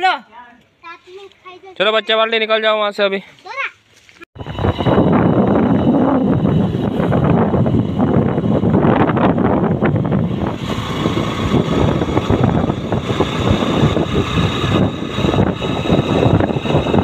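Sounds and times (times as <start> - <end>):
road noise: 0.6 - 17.0
motorcycle engine: 4.4 - 17.0
wind rushing over microphone: 4.4 - 17.0.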